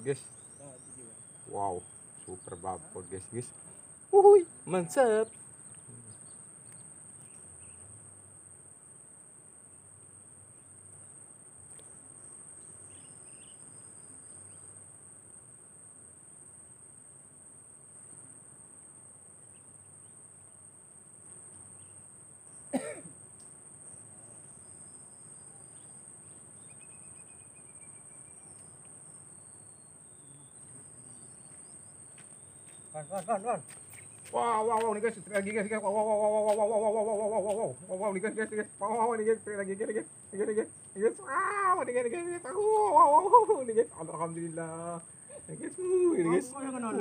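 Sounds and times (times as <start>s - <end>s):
high-pitched insect buzz: 0.0s - 8.1s, 22.8s - 47.0s
person coughing: 22.8s - 23.1s.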